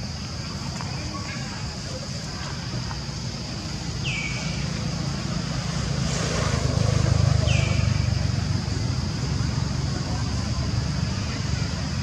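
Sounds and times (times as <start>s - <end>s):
steady high hiss: 0.0s - 12.0s
vehicle passing: 3.8s - 12.0s.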